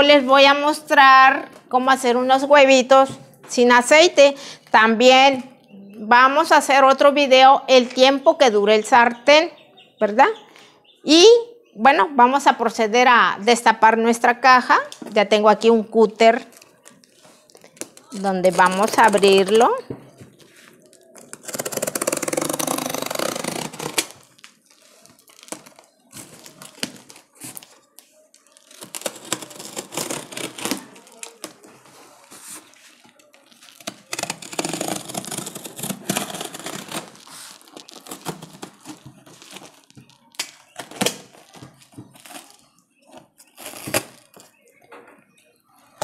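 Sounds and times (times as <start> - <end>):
cardboard rustling: 16.4 - 44.6
cardboard ripping: 20.6 - 27.8, 28.4 - 44.6
box cutter slitting tape: 21.2 - 24.3, 28.7 - 31.6, 33.8 - 41.6, 43.5 - 44.4.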